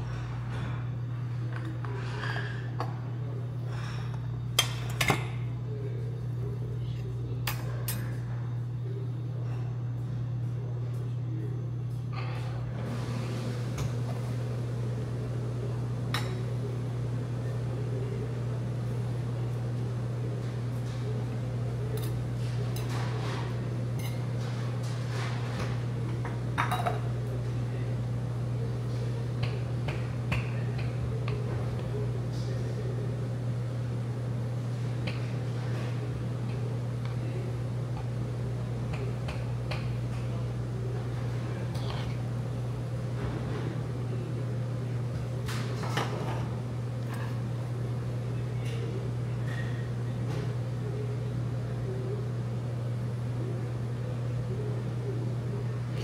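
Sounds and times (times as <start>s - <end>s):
steady low hum: 0.0s - 56.0s
utensils clinking against dishes: 4.0s - 5.5s, 6.8s - 8.3s, 21.8s - 27.4s, 48.6s - 49.9s.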